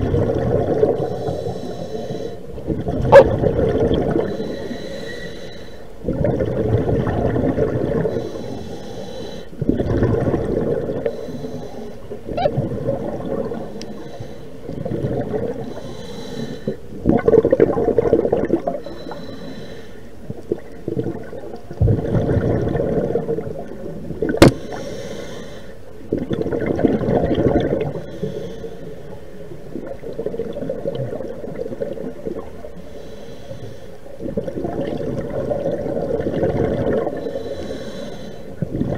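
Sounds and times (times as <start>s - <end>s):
rush of exhaled bubbles: 0.0s - 1.5s, 2.6s - 4.4s, 6.0s - 8.4s, 9.6s - 11.2s, 12.2s - 13.7s, 14.7s - 15.7s, 16.9s - 18.8s, 20.4s - 24.8s, 26.1s - 28.1s, 29.7s - 32.5s, 34.2s - 37.2s, 38.6s - 38.9s
underwater regulator breathing: 1.0s - 2.5s, 4.2s - 6.0s, 8.0s - 9.6s, 11.0s - 12.5s, 15.5s - 16.8s, 18.8s - 20.1s, 24.4s - 25.8s, 32.7s - 34.0s, 37.0s - 38.6s.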